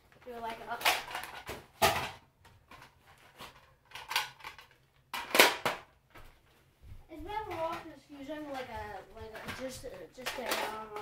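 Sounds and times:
plastic toy blaster clacks and knocks: 0.6 - 5.9, 9.3 - 11.0.

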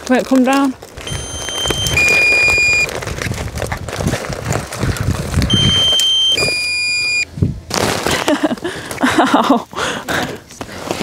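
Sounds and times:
two-tone electronic warning alarm: 1.0 - 2.9, 5.5 - 7.2.

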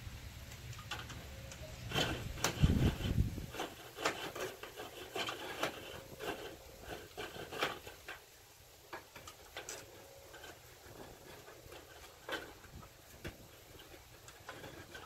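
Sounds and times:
clicks and taps on aluminium frames: 8.9 - 15.0.

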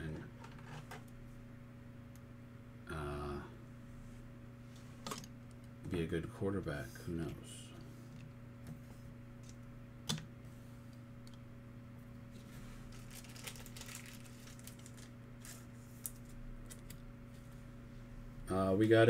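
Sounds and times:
electrical hum: 0.0 - 19.0
cards rustling and clicking: 12.9 - 17.5.

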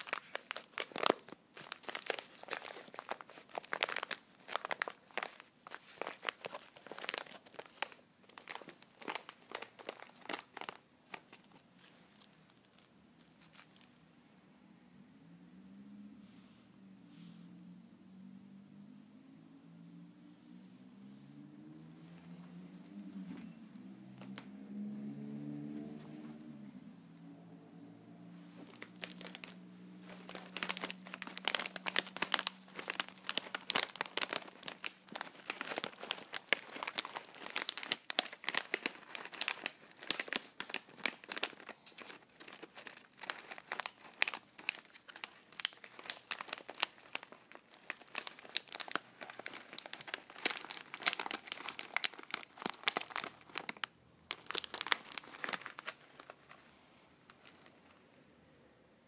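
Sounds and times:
plastic packaging crinkling: 0.0 - 13.9, 22.2 - 24.5, 28.5 - 58.0.

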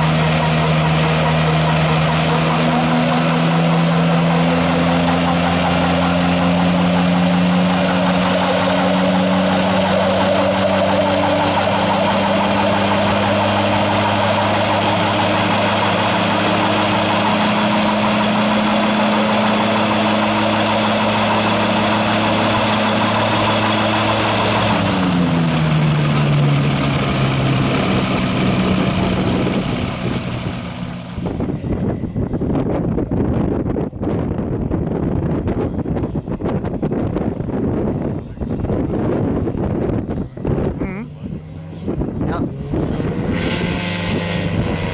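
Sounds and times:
rotor blades spinning up: 0.0 - 31.6
aircraft engine and propeller: 0.0 - 44.9
wind noise on microphone: 0.0 - 44.9.

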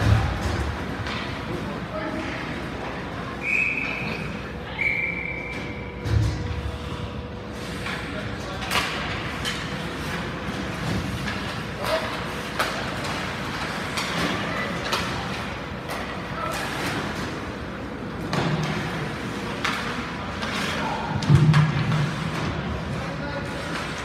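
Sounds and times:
hockey sticks and puck knocking: 10.9 - 17.3.

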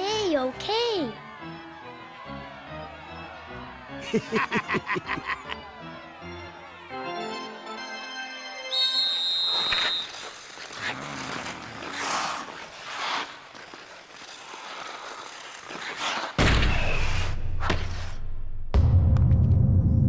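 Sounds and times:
skates scraping across ice: 9.4 - 18.2.

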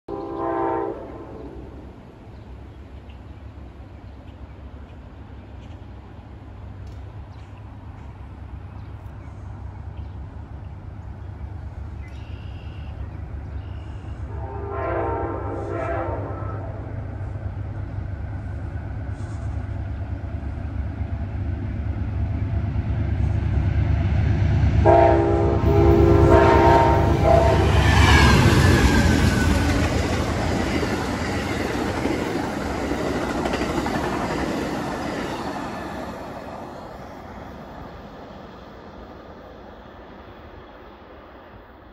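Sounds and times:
train horn chord: 0.1 - 1.7, 14.2 - 16.9, 24.8 - 29.7
diesel locomotive rumble: 0.1 - 40.7
train wheels clattering on rails: 27.7 - 36.6.

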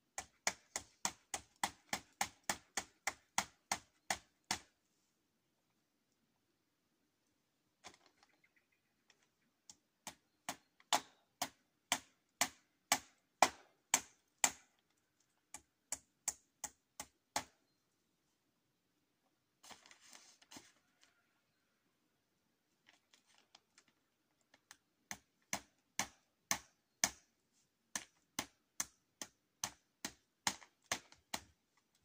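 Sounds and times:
hammer driving nails into wood: 25.1 - 27.3.

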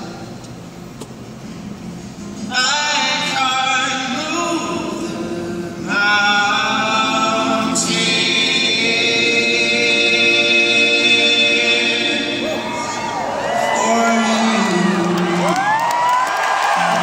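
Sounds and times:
voices singing in harmony: 4.3 - 15.6.

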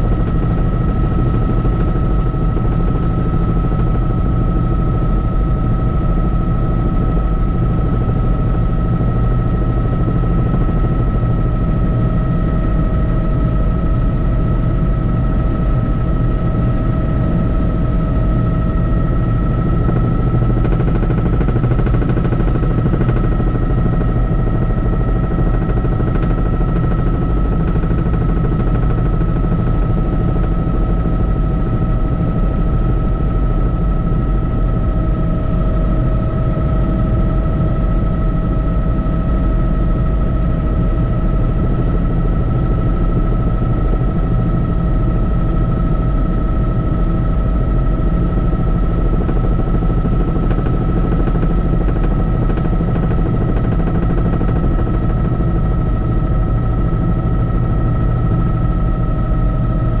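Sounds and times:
helicopter rotor chop: 0.0 - 60.0.

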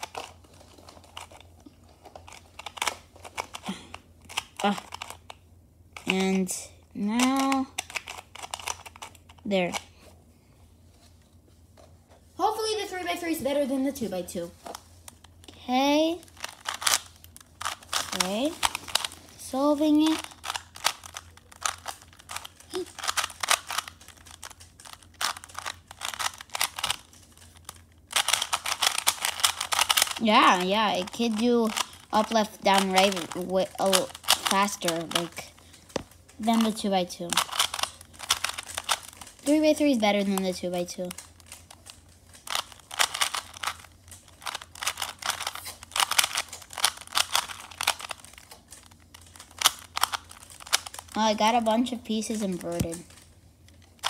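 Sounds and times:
puzzle cube clicking as turned: 2.1 - 5.4, 7.2 - 9.8, 16.3 - 19.2, 20.0 - 51.6.

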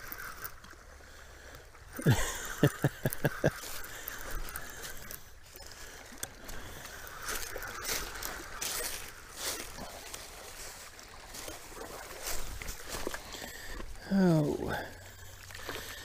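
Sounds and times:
fishing reel cranking: 0.0 - 0.8, 2.9 - 9.2
water noise: 0.0 - 16.0
wind: 0.0 - 16.0.

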